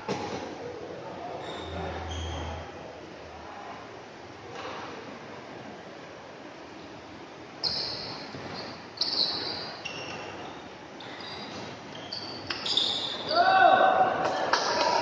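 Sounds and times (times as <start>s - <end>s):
shoes squeaking on court floor: 7.6s - 13.3s
crowd noise: 13.0s - 15.0s.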